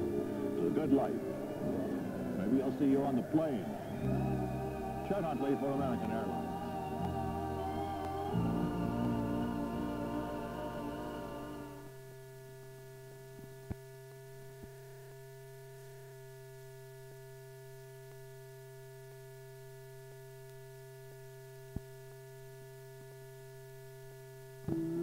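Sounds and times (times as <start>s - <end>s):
background music: 0.0s - 12.0s
electrical mains hum: 0.0s - 25.0s
faint steady tones: 0.0s - 25.0s.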